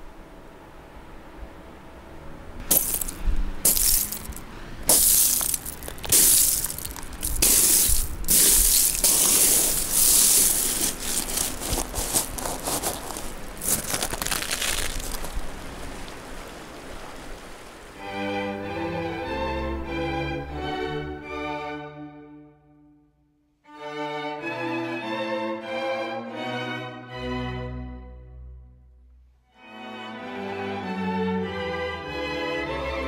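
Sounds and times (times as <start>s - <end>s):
shell fragments crunching: 2.7s - 15.4s.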